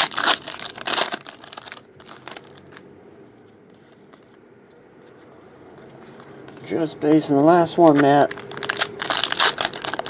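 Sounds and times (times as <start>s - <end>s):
foil wrapper crinkling and tearing: 0.0s - 2.8s, 7.8s - 10.0s.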